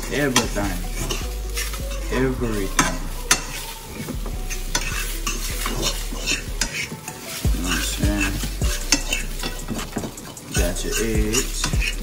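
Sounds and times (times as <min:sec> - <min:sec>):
eggs sizzling: 0:00.0 - 0:12.0
utensil scraping frying pan: 0:00.0 - 0:12.0
utensil clicking against pan: 0:02.8 - 0:12.0.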